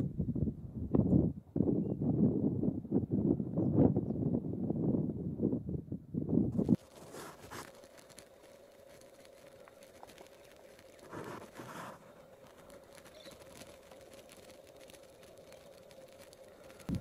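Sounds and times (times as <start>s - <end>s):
footsteps crunching dry leaves: 6.6s - 17.0s.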